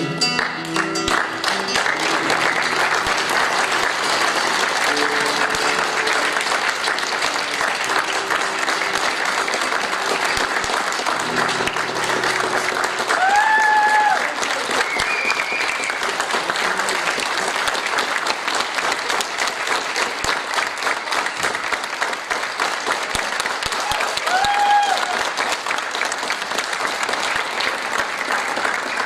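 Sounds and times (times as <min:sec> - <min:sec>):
high-pitched call from crowd: 0:00.0 - 0:16.2
audience applauding: 0:00.0 - 0:29.0.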